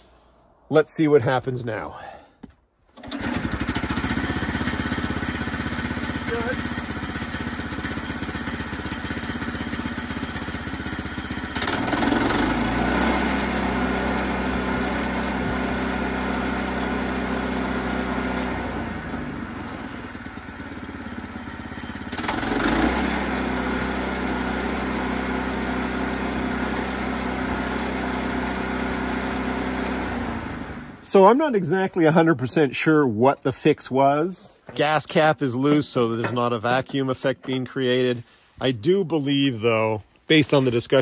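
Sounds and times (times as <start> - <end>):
single-cylinder engine running: 3.0 - 31.0.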